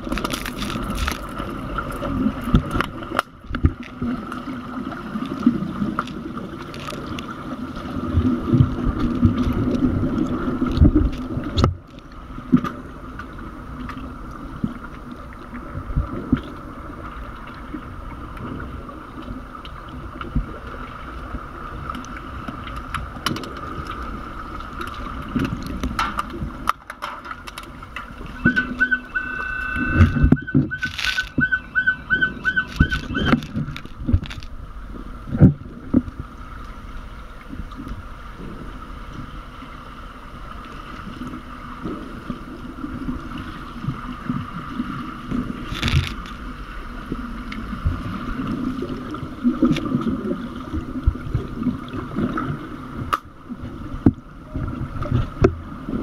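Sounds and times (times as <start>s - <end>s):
steady underwater hum: 0.0s - 56.0s
underwater bubbling: 0.0s - 56.0s
rapid pulsing beep: 28.3s - 33.4s.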